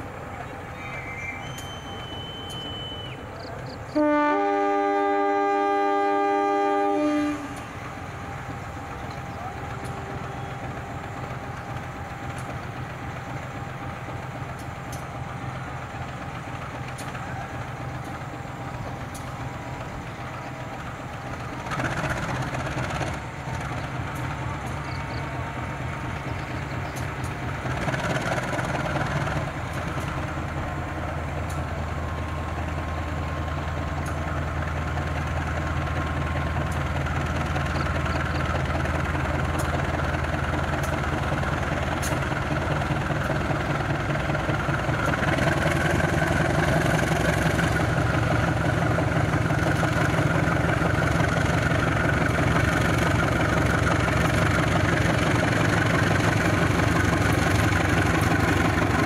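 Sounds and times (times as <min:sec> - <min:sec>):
diesel engine running: 0:00.0 - 0:59.0
locomotive horn blast: 0:03.9 - 0:07.8.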